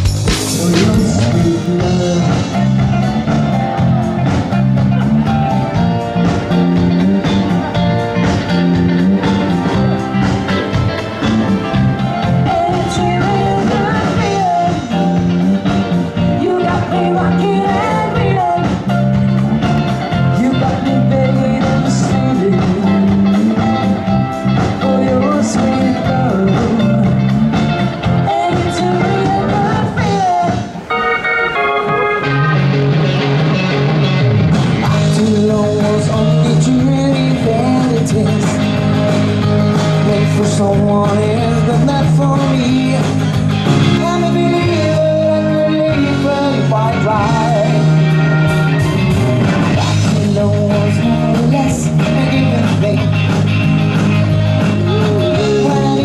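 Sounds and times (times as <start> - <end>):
drums: 0.0 - 56.0
electric guitars: 0.0 - 56.0
keyboard: 0.0 - 56.0
rock and roll band playing: 0.0 - 56.0
man singing: 0.4 - 3.1, 12.3 - 15.4, 16.3 - 19.0, 20.2 - 27.4, 28.2 - 31.6, 34.8 - 39.1, 39.7 - 48.1, 49.8 - 53.6, 54.8 - 56.0
woman singing lead: 12.3 - 15.1, 16.2 - 18.9, 28.2 - 32.5.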